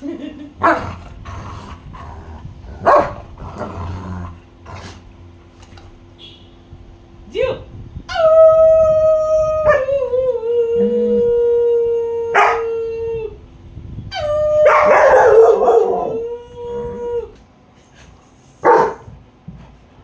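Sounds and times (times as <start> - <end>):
dog barking: 0.6 - 0.9, 2.8 - 3.2, 14.7 - 15.9, 18.6 - 19.1
woman howling: 8.1 - 13.4
dogs howling: 8.2 - 13.4, 14.2 - 17.4.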